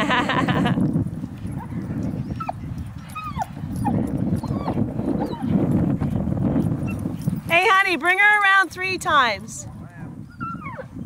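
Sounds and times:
dog whimpering: 0:03.2 - 0:05.5, 0:10.3 - 0:11.0.

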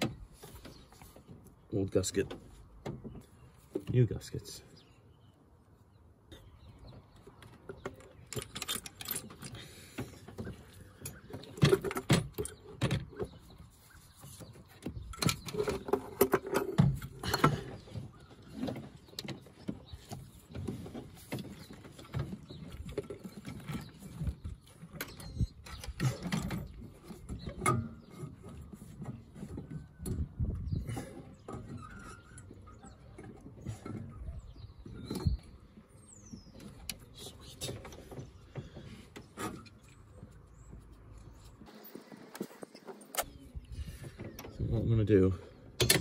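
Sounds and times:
metal engine parts clinking: 0:07.8 - 0:09.8, 0:45.8 - 0:46.0.

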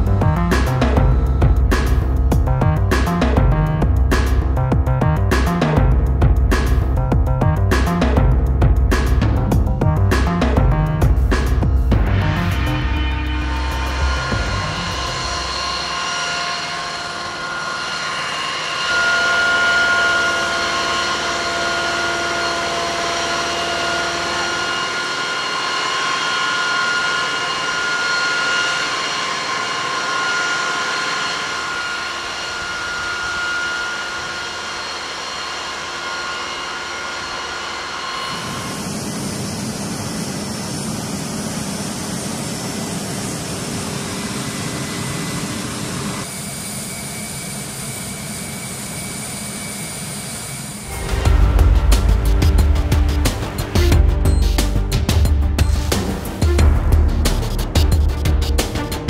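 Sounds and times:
jet engine rough rumble: 0:00.0 - 0:18.1, 0:31.6 - 0:46.3
jet engine whine and roar: 0:12.1 - 0:53.9.

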